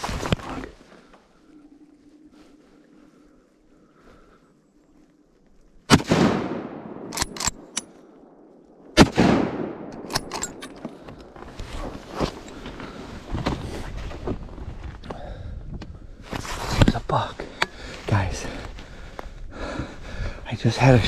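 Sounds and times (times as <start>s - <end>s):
gunshots with echo: 5.9s - 7.7s, 9.0s - 10.3s
sharp clicks: 7.0s - 8.0s.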